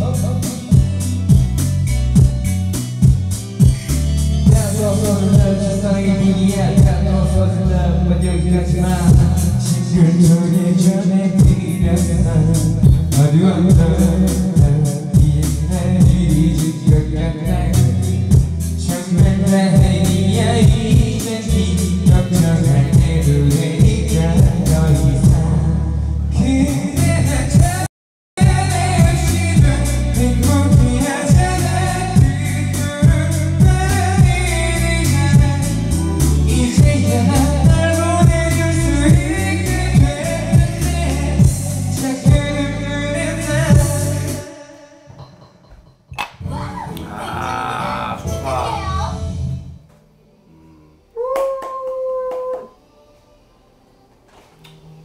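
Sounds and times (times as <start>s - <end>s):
man singing into microphone: 0.0s - 1.0s, 4.4s - 45.2s
karaoke backing track: 0.0s - 50.5s, 51.1s - 55.0s.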